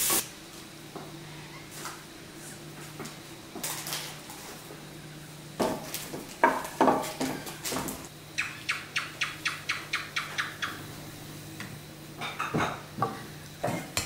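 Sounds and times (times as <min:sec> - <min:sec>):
dishes clinking: 0:12.2 - 0:14.0.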